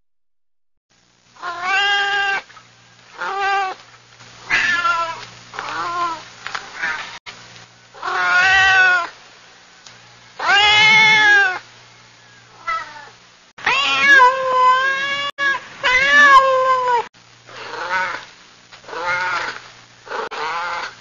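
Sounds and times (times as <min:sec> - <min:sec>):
cat meowing: 0:01.4 - 0:02.4, 0:04.5 - 0:06.2, 0:08.0 - 0:09.1, 0:10.4 - 0:11.6, 0:12.6 - 0:18.2, 0:18.9 - 0:20.9.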